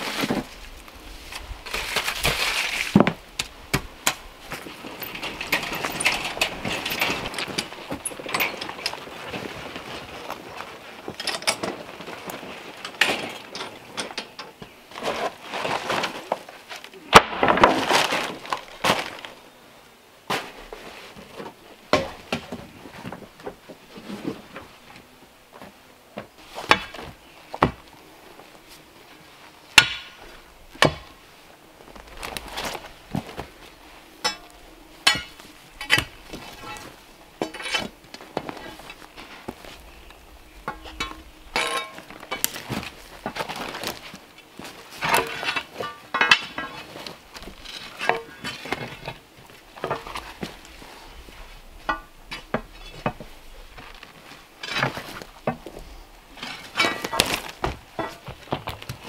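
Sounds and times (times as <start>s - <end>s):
rake scraping wet concrete: 34.3s - 49.2s
pry bar clinking on rocks: 40.7s - 42.5s.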